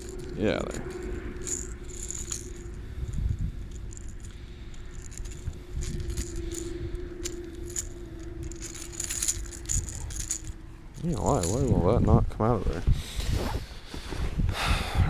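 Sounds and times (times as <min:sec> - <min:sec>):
plastic lure and hooks rattling: 0:00.0 - 0:11.8.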